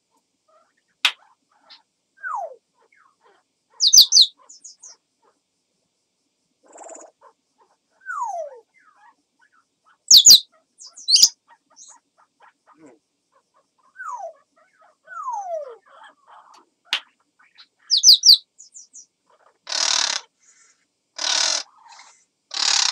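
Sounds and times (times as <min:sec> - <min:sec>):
parrot harsh rasping calls: 0:03.0 - 0:04.6, 0:10.1 - 0:10.4, 0:11.0 - 0:11.3, 0:17.9 - 0:18.4, 0:19.4 - 0:20.3, 0:21.2 - 0:22.9.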